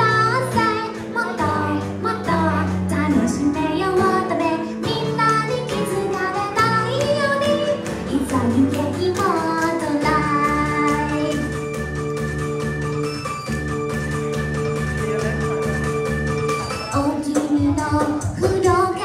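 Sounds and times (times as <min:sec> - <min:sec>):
high-voiced person singing: 0:00.0 - 0:11.6
instrumental accompaniment: 0:00.0 - 0:19.0.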